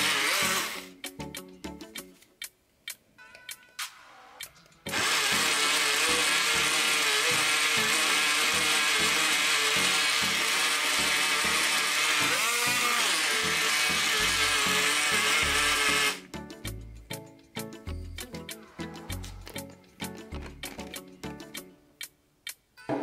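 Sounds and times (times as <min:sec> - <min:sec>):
portable blender running: 0:00.0 - 0:00.9, 0:04.9 - 0:16.2.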